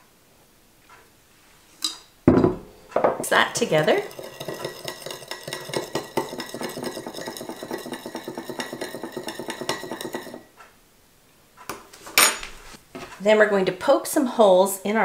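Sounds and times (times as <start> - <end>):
spoon clinking and scraping glass: 3.7 - 10.4.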